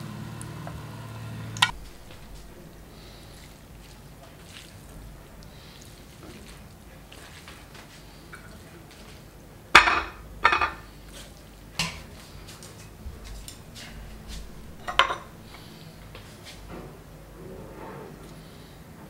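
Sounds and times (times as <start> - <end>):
plate clinking on counter: 9.8 - 10.8, 13.2 - 15.8.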